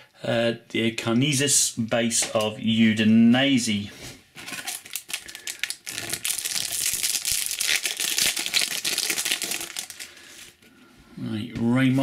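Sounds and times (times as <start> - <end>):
foil pack crinkling and tearing: 4.5 - 10.6.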